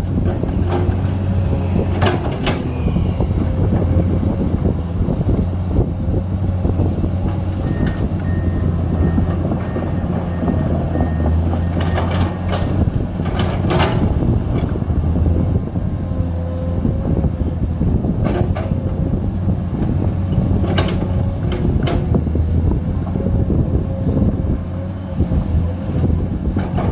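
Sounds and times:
excavator diesel engine: 0:00.0 - 0:26.9
hydraulic whine: 0:01.7 - 0:05.3.

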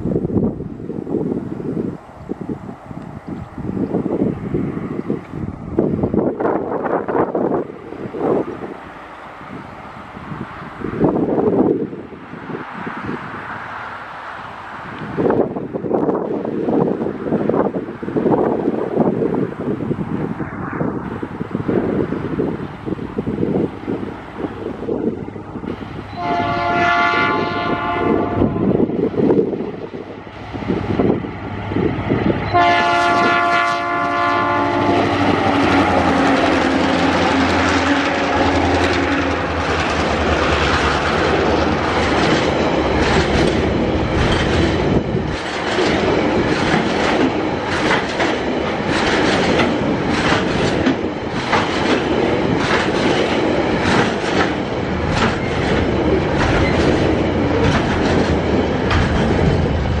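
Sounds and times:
diesel locomotive engine passing: 0:00.0 - 1:00.0
train horn blast: 0:26.1 - 0:28.9, 0:32.4 - 0:39.8
train wheels clickety-clack: 0:32.5 - 1:00.0.

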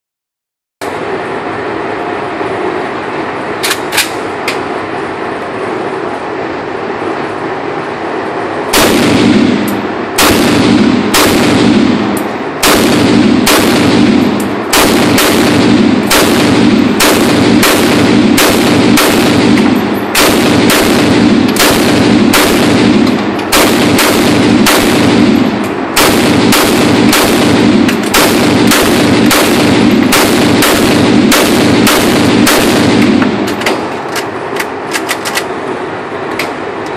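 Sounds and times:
steady background hum: 0:00.8 - 0:36.9
pistol shots indoors: 0:08.7 - 0:33.9.

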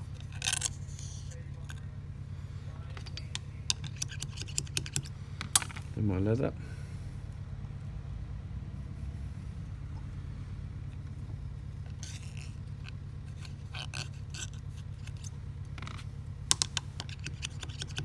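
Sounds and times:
steady low hum: 0:00.0 - 0:18.0
light clicks and scrapes: 0:00.1 - 0:01.9, 0:02.5 - 0:05.9, 0:11.8 - 0:18.0.

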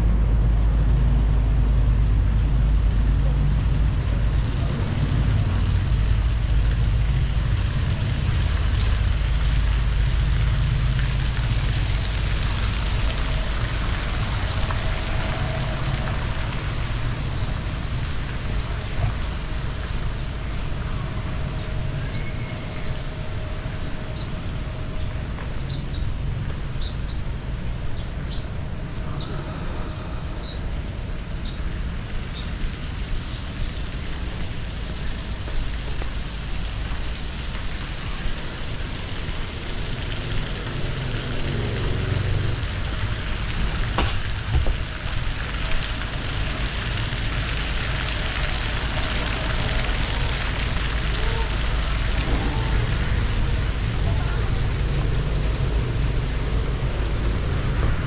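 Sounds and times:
low street rumble: 0:00.0 - 0:58.0.

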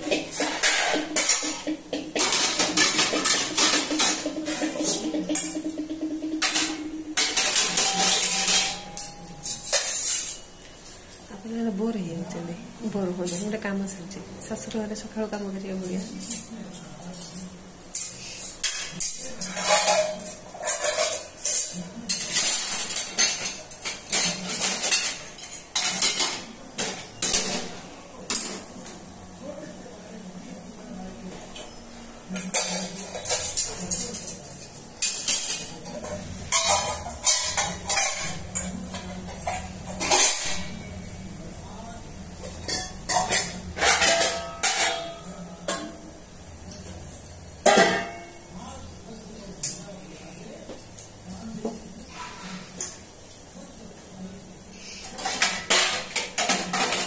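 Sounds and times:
metal utensils clinking: 0:00.0 - 0:11.2, 0:15.3 - 0:28.8, 0:32.3 - 0:48.4, 0:54.6 - 0:57.0.

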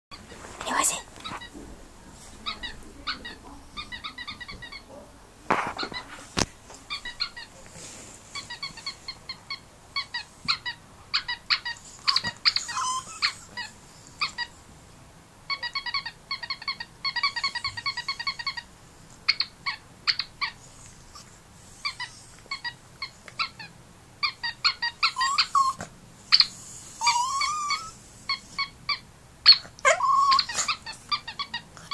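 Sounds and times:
dog whining: 0:08.4 - 0:14.5, 0:19.3 - 0:31.9.

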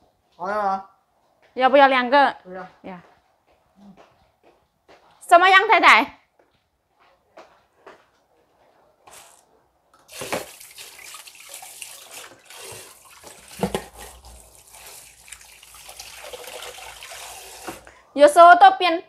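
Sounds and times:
tap water running into sink: 0:10.1 - 0:17.9.

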